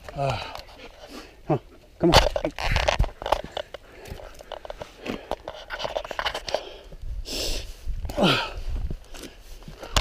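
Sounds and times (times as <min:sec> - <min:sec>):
footsteps crunching over rock: 0:02.0 - 0:07.0, 0:07.8 - 0:10.0.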